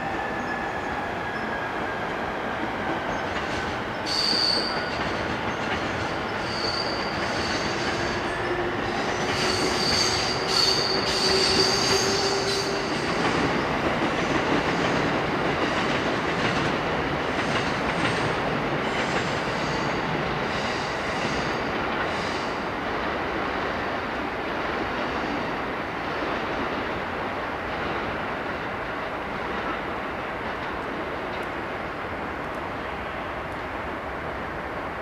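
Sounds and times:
train wheels squealing: 0.0s - 13.8s, 17.6s - 22.6s
rumble of wheels on rail: 0.0s - 35.0s.

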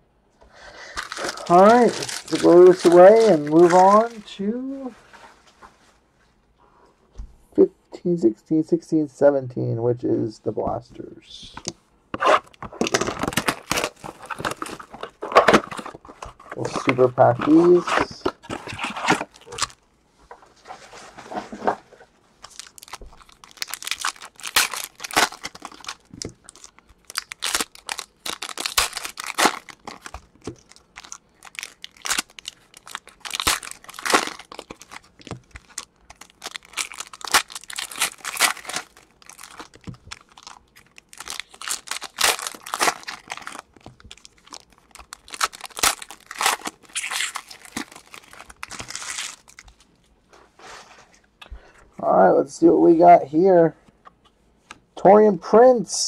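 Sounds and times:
foil wrappers tearing and crinkling: 0.7s - 4.3s, 12.2s - 19.8s, 22.4s - 49.8s.

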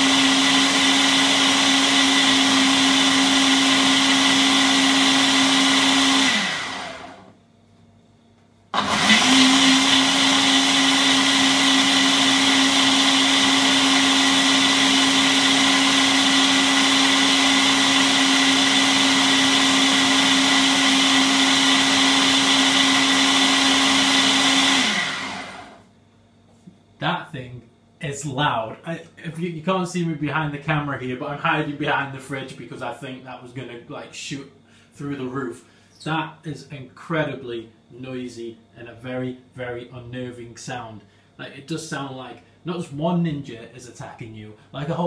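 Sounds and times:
blender motor whining: 0.0s - 7.4s, 8.7s - 25.9s.

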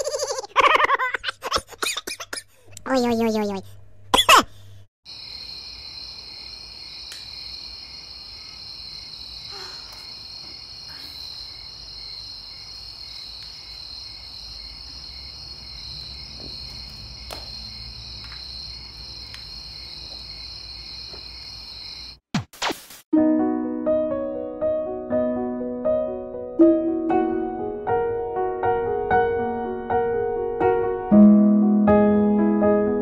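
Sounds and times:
insects trilling: 5.1s - 22.2s.

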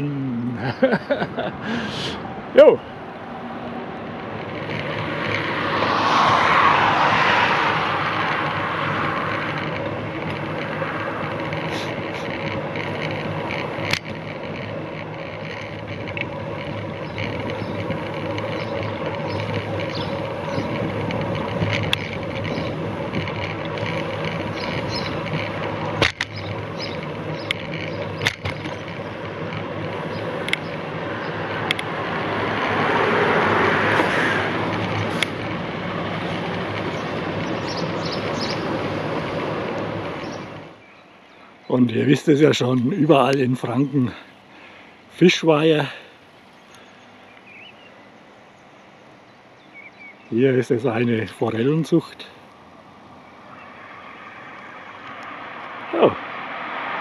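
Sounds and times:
vehicle passing: 0.0s - 45.1s, 50.6s - 57.0s
bicycle riding noise: 0.0s - 57.0s
lorry passing loudly: 5.0s - 9.6s, 53.6s - 57.0s.

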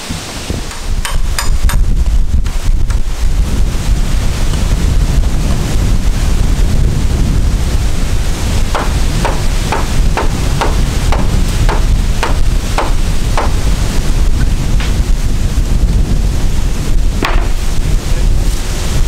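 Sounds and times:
hammer blows: 0.0s - 3.0s, 8.5s - 14.1s
wind buffeting microphone: 0.0s - 19.0s.

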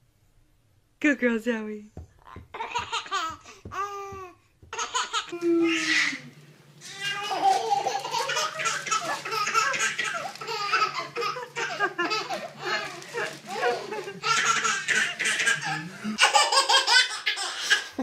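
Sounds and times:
baby laughing: 2.3s - 6.2s, 6.9s - 18.0s.

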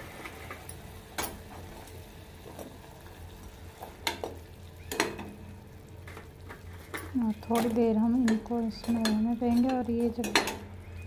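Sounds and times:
syrup bubbling and sizzling: 0.0s - 11.0s
metal spoon clinking against pan: 8.2s - 10.6s.

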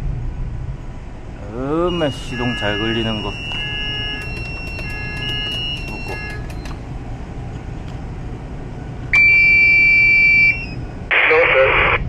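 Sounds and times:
engine room machinery din: 0.0s - 12.0s
alarm buzzer tone: 1.5s - 6.8s, 9.2s - 10.8s
electronic beeping: 1.6s - 6.9s.

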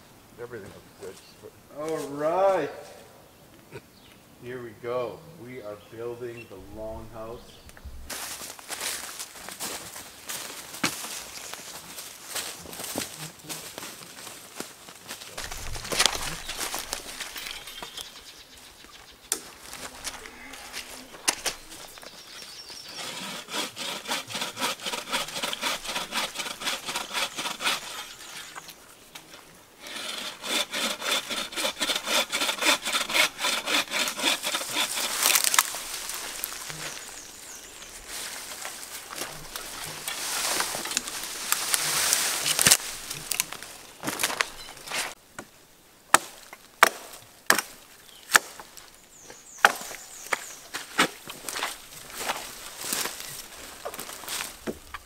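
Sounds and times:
rustling: 6.5s - 45.2s, 48.2s - 55.0s
hand saw cutting wood: 20.7s - 28.6s, 29.2s - 37.0s.

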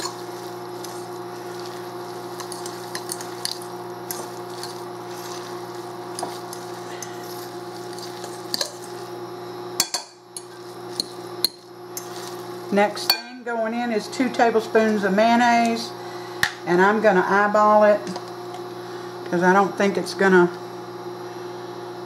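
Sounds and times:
fork mashing moist mixture: 0.0s - 9.2s, 10.4s - 12.7s
steady hum: 0.0s - 22.0s.

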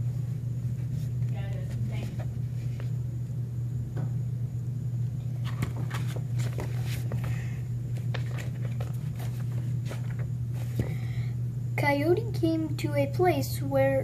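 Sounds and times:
steady low hum: 0.0s - 14.0s
book pages rustling: 5.4s - 10.9s.

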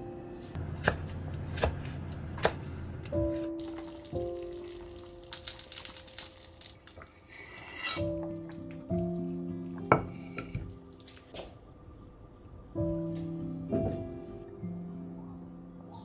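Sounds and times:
soft piano music: 0.0s - 0.7s, 2.4s - 16.0s
stew bubbling and crackling: 1.0s - 11.6s.

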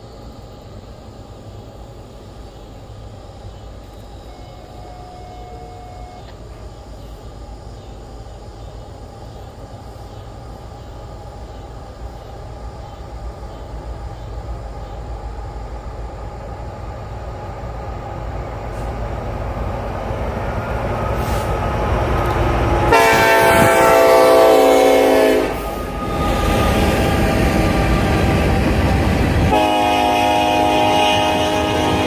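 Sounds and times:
diesel locomotive rumble: 0.0s - 32.0s
train air horn blast: 4.3s - 6.3s, 22.9s - 28.2s, 29.4s - 32.0s.

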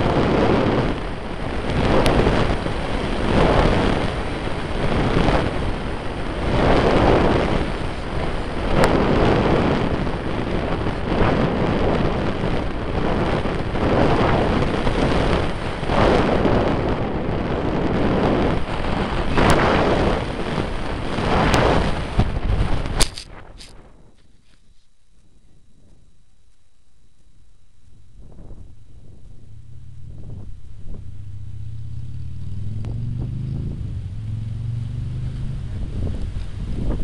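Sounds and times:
wind buffeting microphone: 0.0s - 24.6s, 27.8s - 37.0s
sharp clicks: 22.9s - 23.8s.

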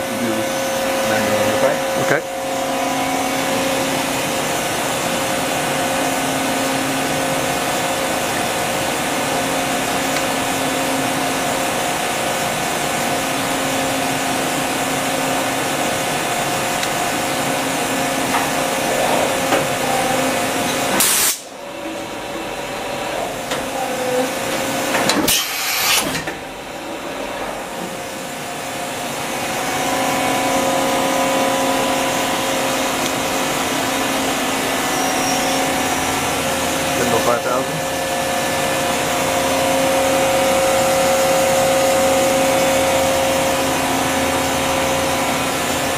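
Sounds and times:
machine whirring and humming: 0.0s - 45.9s
loud hiss: 21.0s - 21.5s.

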